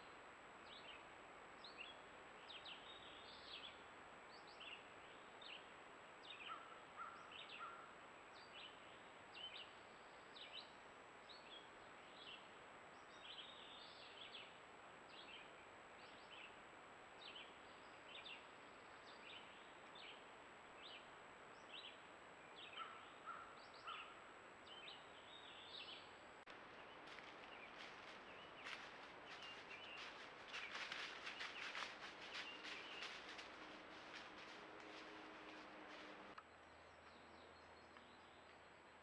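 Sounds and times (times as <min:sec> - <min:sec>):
bird chirping: 0:20.8 - 0:39.0.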